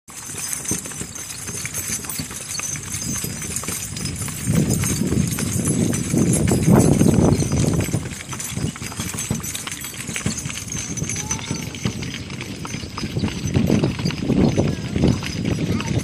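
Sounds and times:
hooves clip-clopping on pavement: 0:00.1 - 0:16.0.

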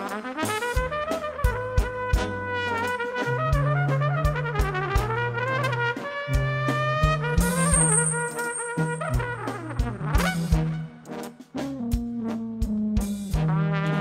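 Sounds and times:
trumpet melody: 0:00.0 - 0:14.0
held bass line: 0:01.5 - 0:11.1
drum beat: 0:07.1 - 0:10.9.

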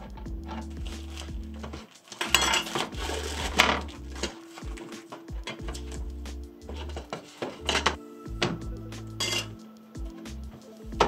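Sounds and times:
background music: 0:00.0 - 0:11.0
sheet being ripped off: 0:00.9 - 0:05.2.

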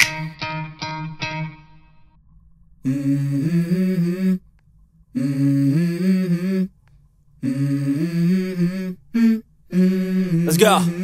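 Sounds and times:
low hummed vocal music: 0:02.8 - 0:11.0.

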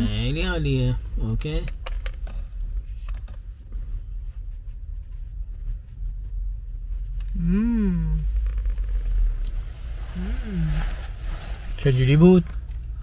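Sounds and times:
low steady rumble: 0:00.0 - 0:13.0
person humming mmm: 0:07.2 - 0:08.4.

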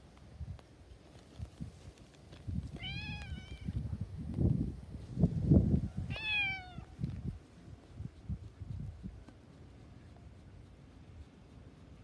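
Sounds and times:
wind rumbling on microphone: 0:00.0 - 0:11.3
cat meowing: 0:02.8 - 0:03.7, 0:06.1 - 0:06.9.

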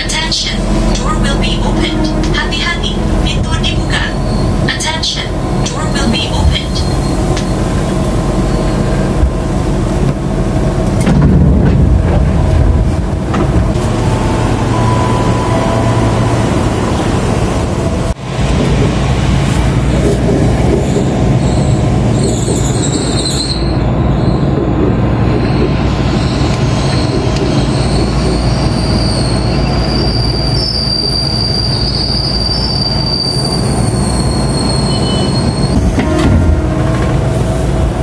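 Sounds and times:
electric train rumble: 0:00.0 - 0:38.0
high wheel squeal: 0:21.4 - 0:24.5, 0:25.4 - 0:35.8.

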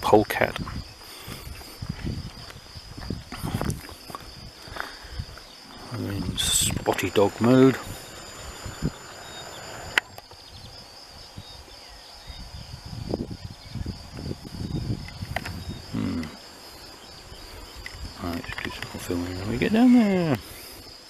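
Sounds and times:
crickets trilling: 0:00.0 - 0:21.0
footsteps on dirt track: 0:00.5 - 0:05.6.

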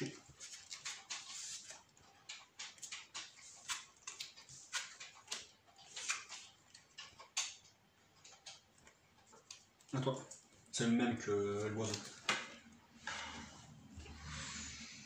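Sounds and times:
cards swishing and tapping: 0:02.6 - 0:06.6.

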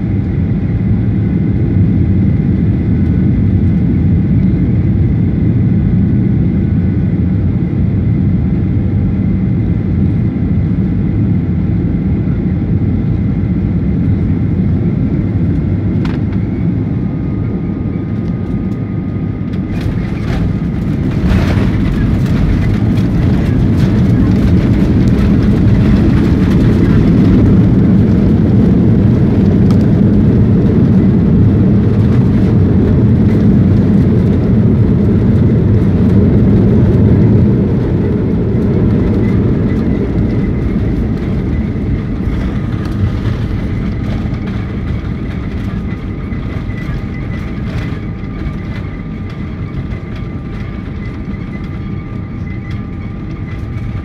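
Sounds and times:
jet engine whine: 0:00.0 - 0:54.0
jet engines and wheels rumbling: 0:00.0 - 0:54.0.

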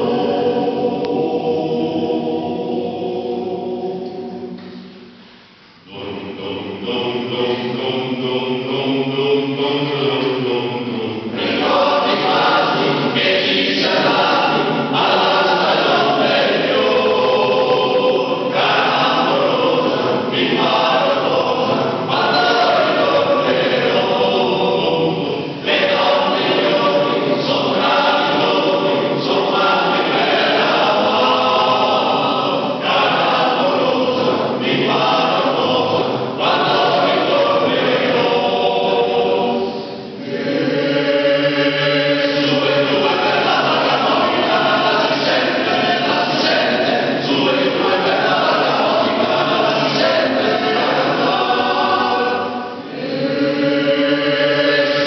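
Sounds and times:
male choir singing: 0:00.0 - 0:04.9, 0:05.9 - 0:55.0.

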